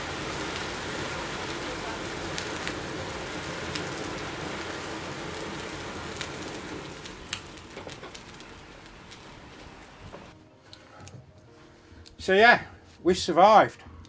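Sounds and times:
sharp cracks of flame: 0:00.0 - 0:10.8
flame rushing: 0:00.0 - 0:12.1.

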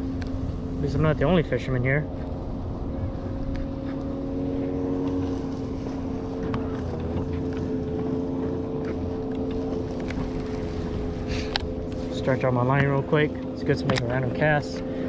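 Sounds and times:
boat motor humming: 0:00.0 - 0:15.0.

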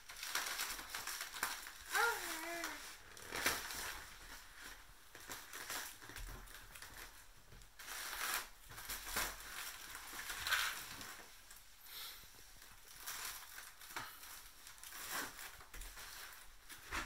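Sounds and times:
foil balloon crinkling: 0:00.0 - 0:11.6, 0:12.6 - 0:17.0.

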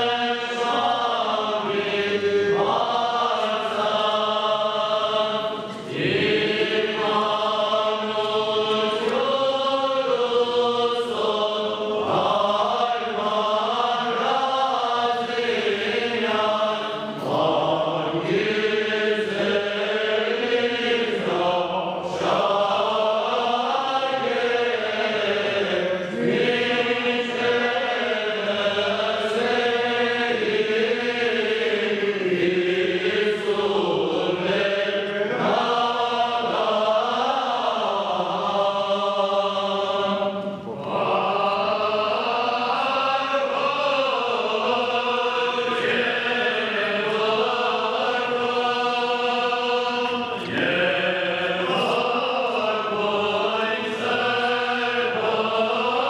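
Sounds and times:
choir chanting a hymn: 0:00.0 - 0:56.0.

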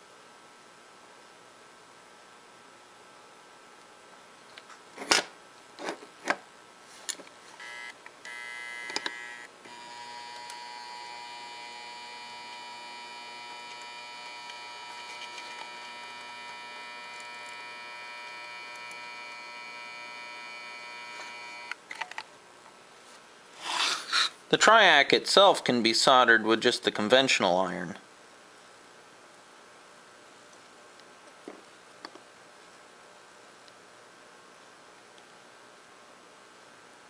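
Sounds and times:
soldering gun buzzing: 0:07.6 - 0:21.8.

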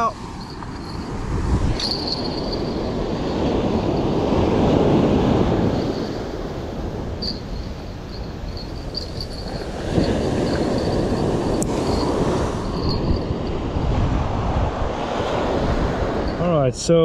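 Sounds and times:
wind buffeting microphone: 0:00.0 - 0:16.8
fishing reel ticking: 0:07.2 - 0:13.2.

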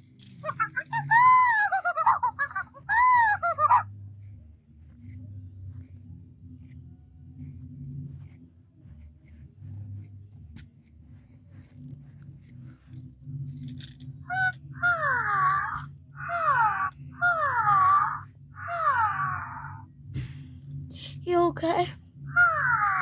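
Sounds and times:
toy monkey falling cries: 0:00.4 - 0:03.8, 0:14.3 - 0:19.3
faint handling sounds: 0:04.0 - 0:14.2.

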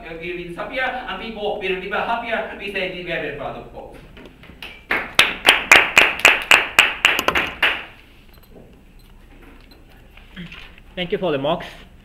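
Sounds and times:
people clapping: 0:04.5 - 0:08.0.

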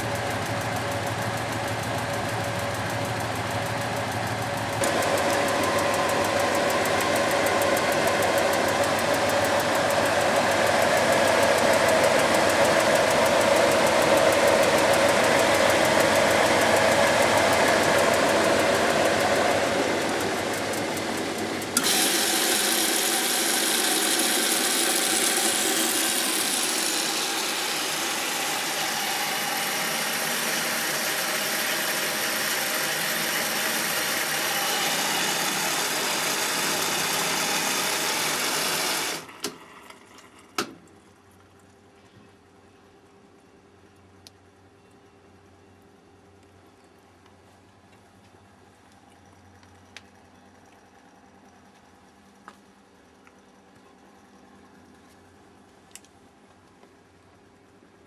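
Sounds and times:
washing machine running: 0:00.0 - 0:40.8.

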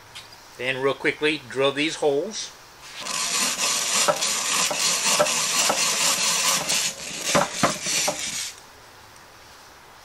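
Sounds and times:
drill bit rasping wood: 0:02.9 - 0:08.6
drill gears clicking: 0:02.9 - 0:08.6.

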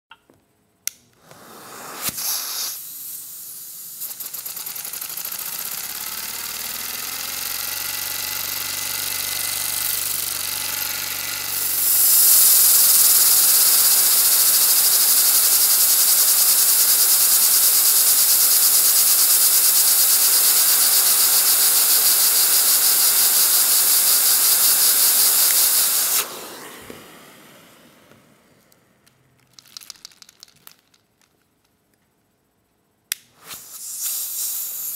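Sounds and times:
vacuum cleaner motor: 0:01.2 - 0:02.6, 0:04.0 - 0:28.8
loud rush of air: 0:01.2 - 0:02.9, 0:25.7 - 0:28.5.

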